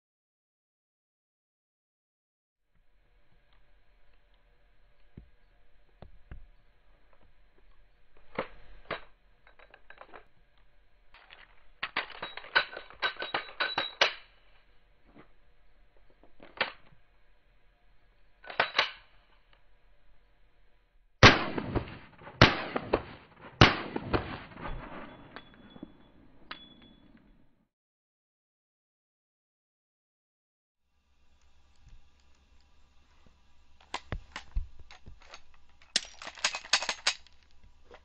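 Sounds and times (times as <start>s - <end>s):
pistol shots: 21.2s - 25.0s
pistol slide racking clicks: 33.8s - 37.6s.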